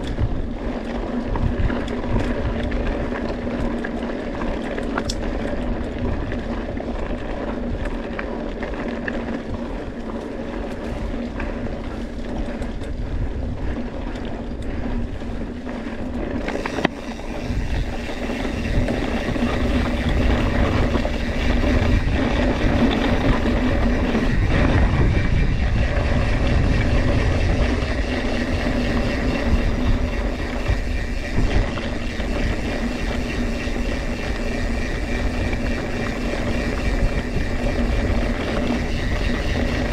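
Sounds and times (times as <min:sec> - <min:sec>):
bike rolling over dry trail: 0:00.0 - 0:39.9
wind rushing over microphone: 0:00.0 - 0:39.9
steady hum: 0:14.8 - 0:39.9.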